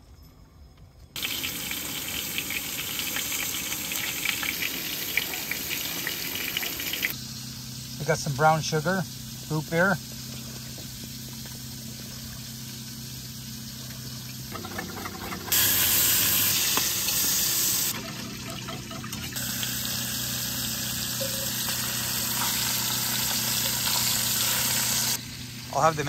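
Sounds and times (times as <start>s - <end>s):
meat searing loudly: 1.2s - 26.0s
liquid pouring into pot: 14.0s - 24.9s.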